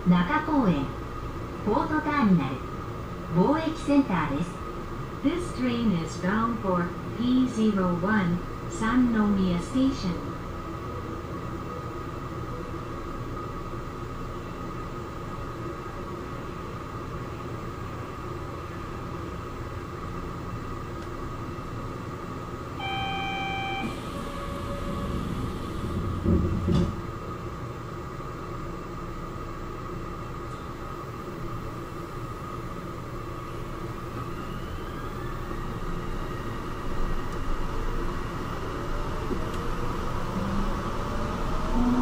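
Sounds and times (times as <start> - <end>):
train equipment hum: 20.4 - 42.0
train motor whine rising: 22.7 - 27.6, 32.8 - 42.0
short beep: 22.8 - 26.9.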